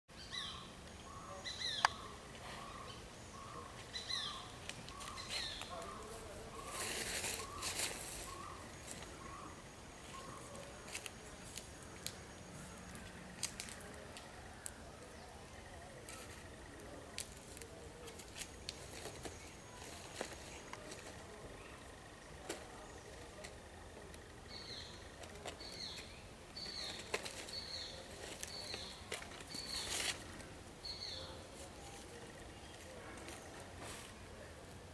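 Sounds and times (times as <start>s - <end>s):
small bird calling: 0.2s - 18.1s
clicks and rustles in undergrowth: 3.4s - 15.1s, 16.0s - 34.9s.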